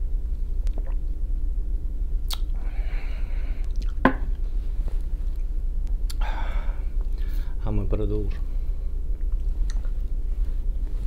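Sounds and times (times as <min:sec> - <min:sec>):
low hum: 0:00.0 - 0:11.0
lip smack: 0:02.2 - 0:02.6
breathy exhale: 0:02.6 - 0:03.7, 0:06.2 - 0:07.6
glass knocking on table: 0:04.0 - 0:04.2.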